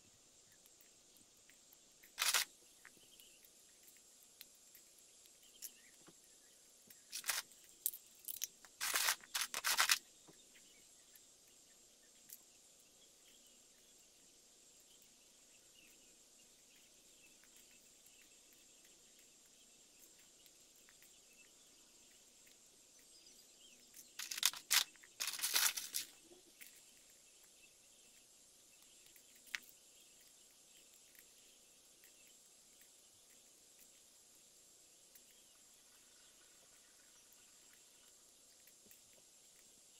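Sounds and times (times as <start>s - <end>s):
steady hiss: 0.0s - 12.4s
plastic pieces clicking and clattering: 7.1s - 10.0s, 24.2s - 26.8s.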